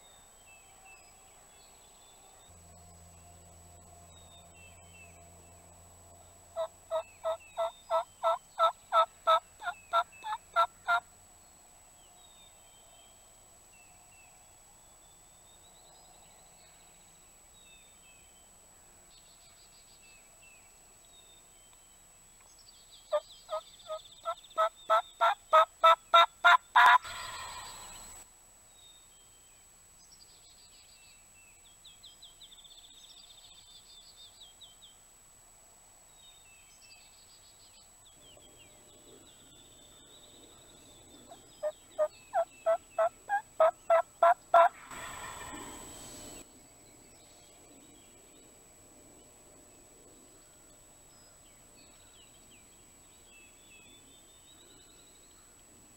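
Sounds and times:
songbirds chirping faintly: 0.0 - 55.9
turkey gobble: 6.6 - 11.0, 23.1 - 28.0, 41.3 - 46.2.

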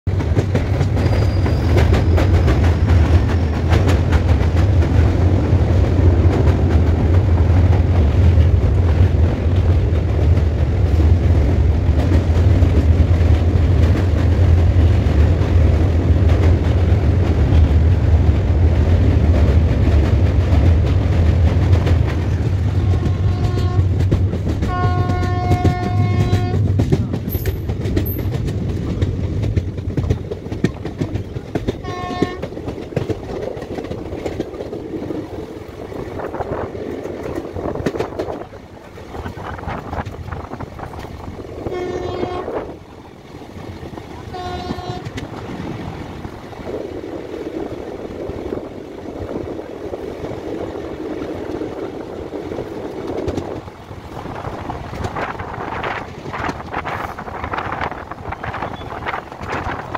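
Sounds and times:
train rumbling on rails: 0.0 - 59.9
train horn: 22.7 - 24.0, 24.6 - 26.7, 31.8 - 32.5, 41.6 - 42.8, 44.2 - 45.2.

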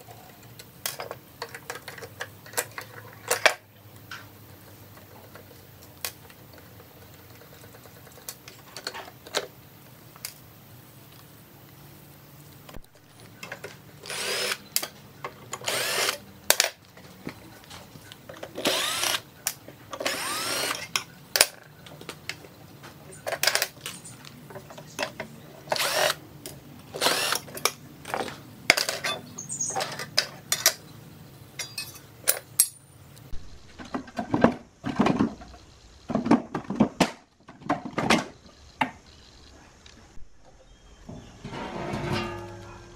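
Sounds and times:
power screwdriver running: 14.0 - 14.6, 15.6 - 16.2, 18.6 - 19.2, 20.0 - 20.9, 25.7 - 26.2, 27.0 - 27.5.

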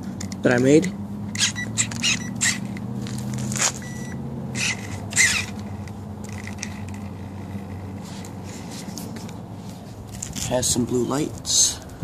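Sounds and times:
electronic beep: 1.4 - 2.5, 3.8 - 4.2.

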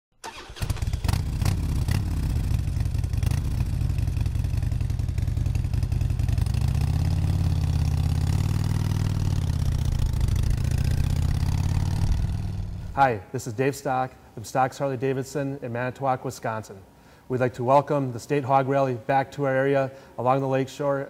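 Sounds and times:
motorcycle engine starting and idling: 0.2 - 13.0.

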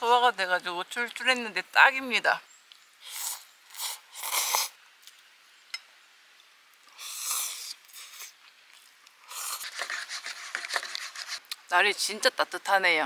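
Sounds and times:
breathy slurps: 3.0 - 4.8.

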